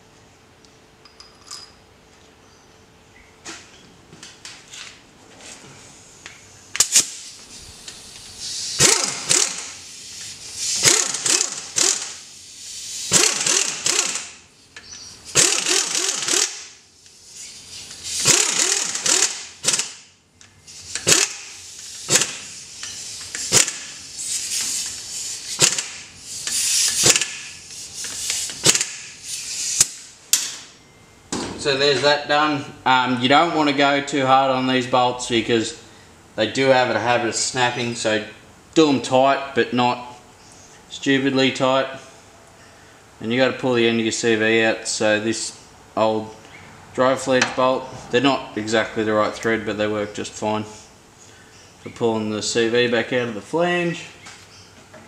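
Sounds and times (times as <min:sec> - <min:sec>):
air wrench running in bursts: 0:06.8 - 0:30.1.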